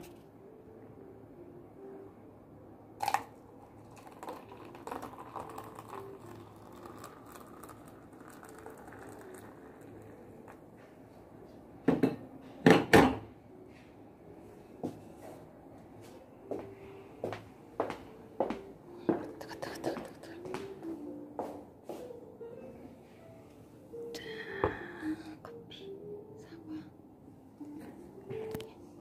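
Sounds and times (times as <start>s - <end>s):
water pouring into a cup: 3.0s - 10.6s.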